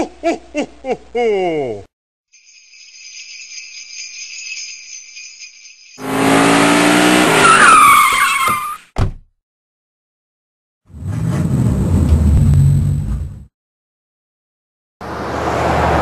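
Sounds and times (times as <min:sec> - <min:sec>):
sleigh bells jingling: 0:02.3 - 0:06.6
tyres squealing: 0:07.4 - 0:08.8.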